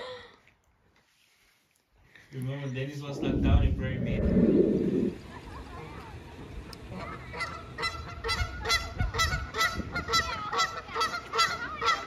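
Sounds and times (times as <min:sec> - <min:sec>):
geese honking: 0:06.9 - 0:12.0.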